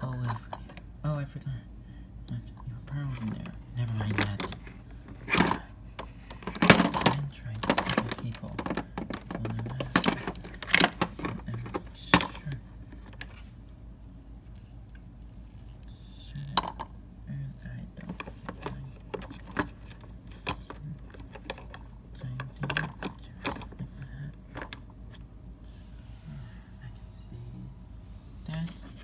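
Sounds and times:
plastic toys clicking and knocking: 3.2 - 13.3, 16.4 - 16.9, 18.0 - 23.8, 24.5 - 24.8.

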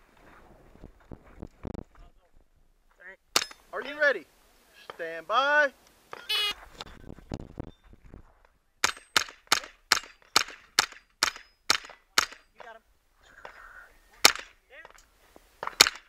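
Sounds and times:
rifle shots hitting steel targets: 3.4 - 3.6, 8.8 - 12.6, 14.2 - 14.6, 15.6 - 16.0.

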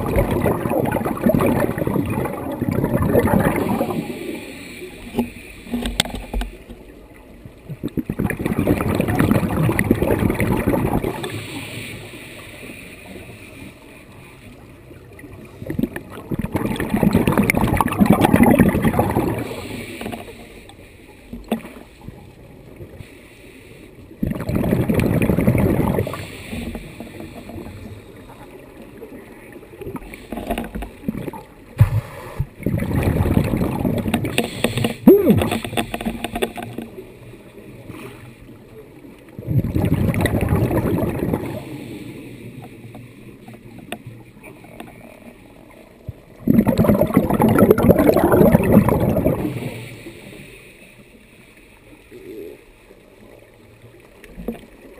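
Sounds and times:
exhaled bubbles rushing: 0.0 - 5.2, 7.6 - 11.4, 15.2 - 20.3, 24.2 - 27.8, 29.8 - 36.8, 39.3 - 41.8, 46.2 - 49.8
diver inhaling through regulator: 34.2 - 36.1.

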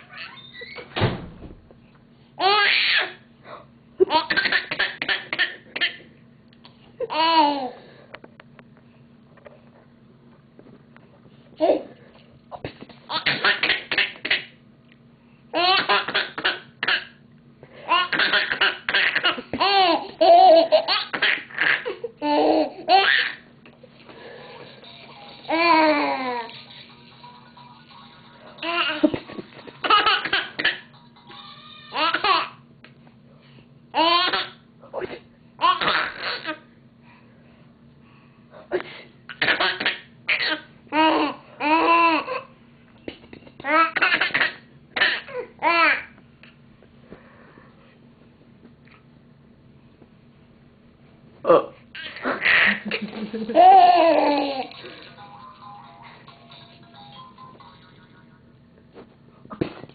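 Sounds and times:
baby squealing: 0.0 - 0.9
baby giggling: 4.0 - 6.0, 13.1 - 14.5, 15.6 - 17.2, 17.9 - 23.4, 28.6 - 32.6, 35.6 - 36.6, 52.0 - 54.8.

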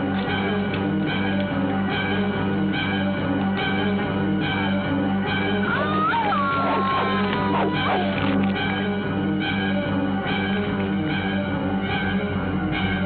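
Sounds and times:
rock-style film score music: 0.0 - 13.0.

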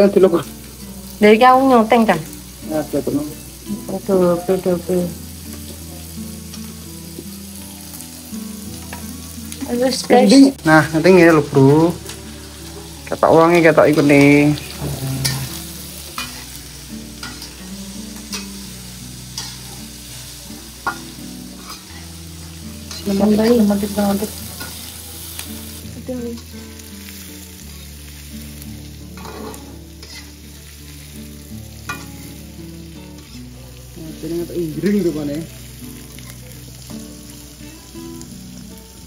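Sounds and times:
offal sizzling in a wok: 0.0 - 39.0
metal spatula scraping a pan: 13.9 - 20.1, 20.8 - 25.0, 29.1 - 31.0.

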